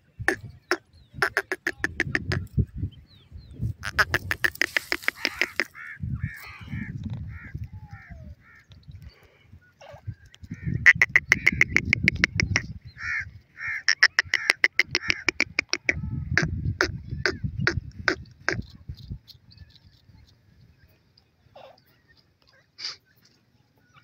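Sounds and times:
francolins calling: 0:03.1 - 0:18.6.

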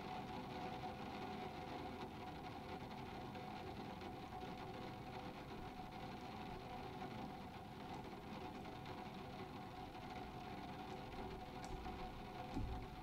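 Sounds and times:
light rain on glass: 0:05.6 - 0:13.0.

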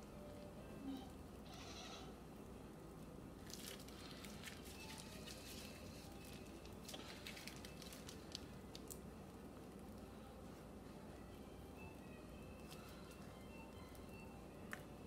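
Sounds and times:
low steady hum: 0:00.0 - 0:15.0
plastic bag crinkling: 0:03.4 - 0:09.0.

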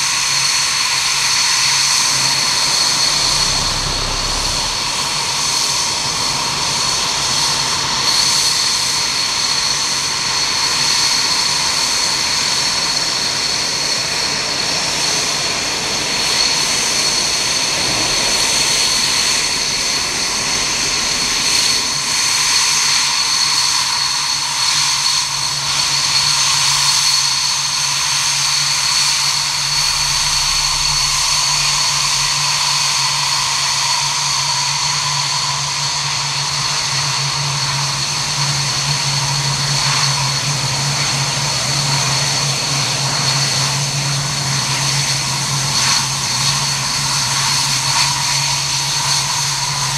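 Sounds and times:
jet turbine whine: 0:00.0 - 0:49.9
jet engine rush: 0:01.3 - 0:06.5, 0:16.0 - 0:24.0, 0:27.9 - 0:34.0.

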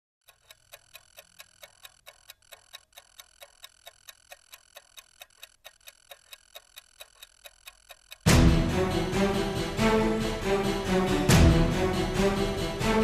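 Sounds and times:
faint clock ticking: 0:00.2 - 0:08.4.

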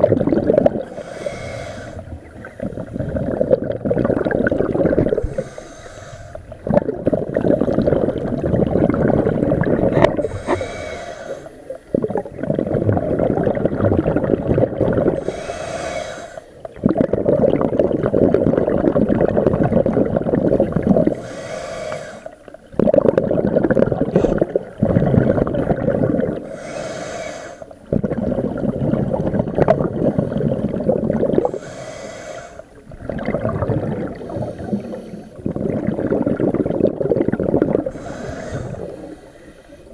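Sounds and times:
bubbling exhaled air underwater: 0:00.0 - 0:39.9
scuba regulator inhalation hiss: 0:00.8 - 0:02.8, 0:05.0 - 0:06.6, 0:10.1 - 0:11.9, 0:15.1 - 0:16.7, 0:21.0 - 0:22.5, 0:26.4 - 0:27.9, 0:31.4 - 0:32.8, 0:34.0 - 0:35.6, 0:37.8 - 0:39.9.

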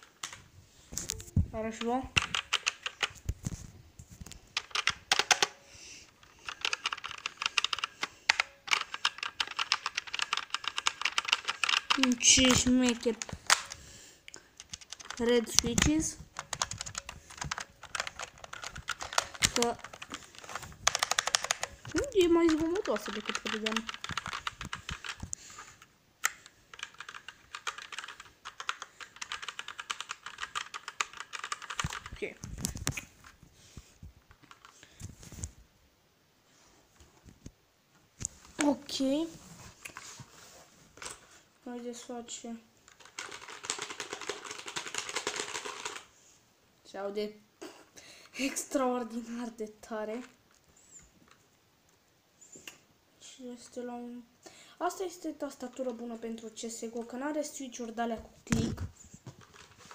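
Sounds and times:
mechanical keyboard typing: 0:01.1 - 0:03.3, 0:04.6 - 0:05.6, 0:06.2 - 0:13.8, 0:14.6 - 0:25.4, 0:26.2 - 0:32.4, 0:34.3 - 0:34.8, 0:42.9 - 0:46.1.

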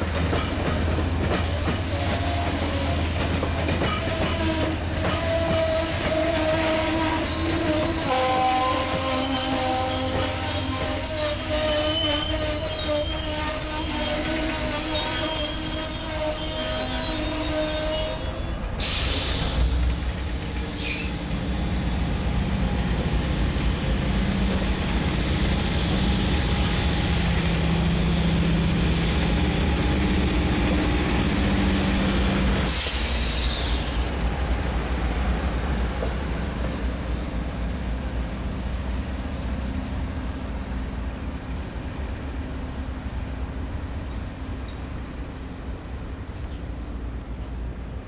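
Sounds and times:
train wheels rumbling on rails: 0:00.0 - 0:48.0
high wheel squeal: 0:00.4 - 0:19.6, 0:20.8 - 0:21.4, 0:23.9 - 0:34.3.

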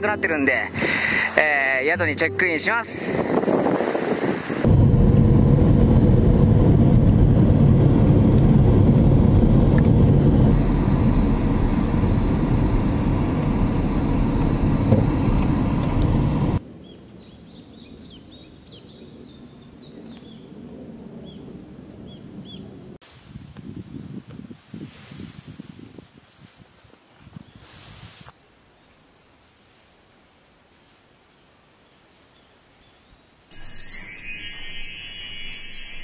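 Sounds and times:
car driving rumble: 0:03.3 - 0:16.6.

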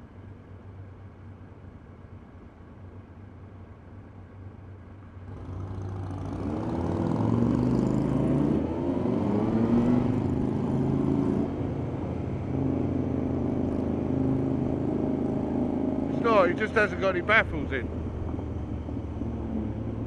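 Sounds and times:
road noise: 0:00.0 - 0:20.0
motorcycle revving and accelerating: 0:05.3 - 0:20.0.

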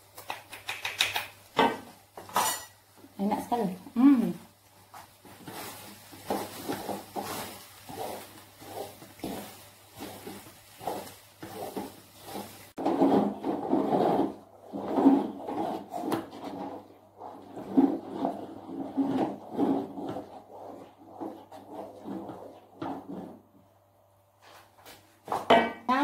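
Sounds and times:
spatula scraping a wok: 0:02.3 - 0:02.8, 0:04.9 - 0:23.5.

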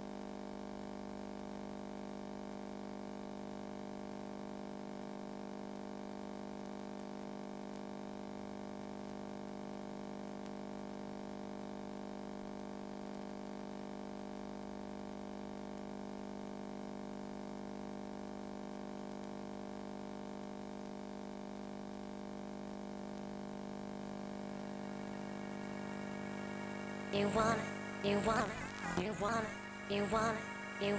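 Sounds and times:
low electronic drone: 0:24.3 - 0:30.9.

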